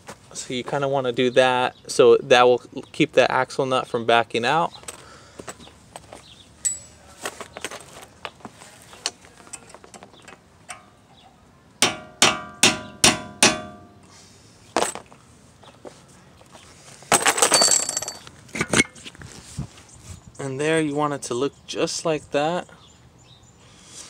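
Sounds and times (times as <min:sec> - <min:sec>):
hammer striking metal: 0:11.8 - 0:14.0.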